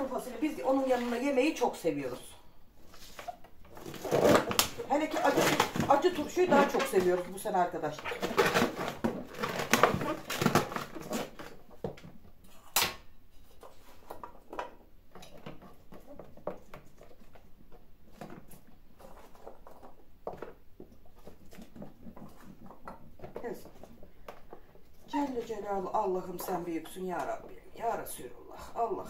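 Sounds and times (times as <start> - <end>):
vegetables tapping in plastic drum: 3.7 - 12.4, 14.1 - 27.6.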